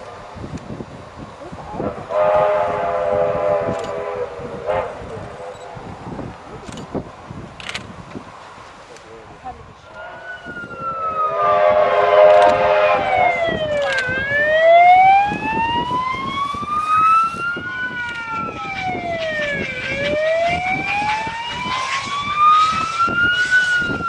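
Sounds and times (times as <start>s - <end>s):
steam locomotive exhaust beating: 0.0s - 7.3s, 9.9s - 24.0s
siren wailing: 9.9s - 24.0s.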